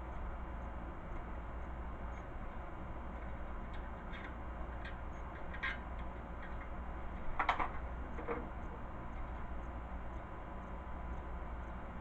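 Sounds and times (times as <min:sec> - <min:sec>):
low background hum: 0:00.0 - 0:12.0
parts clicking and knocking: 0:07.3 - 0:08.5.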